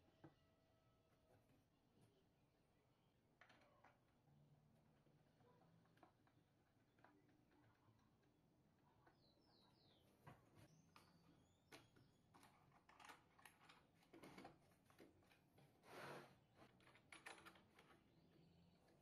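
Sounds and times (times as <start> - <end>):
faint clicks and knocks: 3.4 - 9.3, 10.1 - 15.8.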